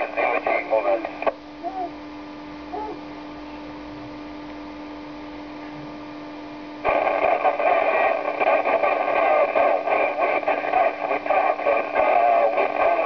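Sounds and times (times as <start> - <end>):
radio static: 0.0 - 1.5, 6.7 - 13.0
faint steady hum: 0.0 - 13.0.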